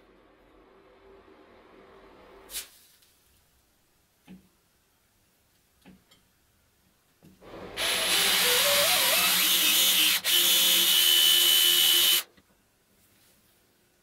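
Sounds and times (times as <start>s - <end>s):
power drill boring into wood: 7.7s - 12.3s.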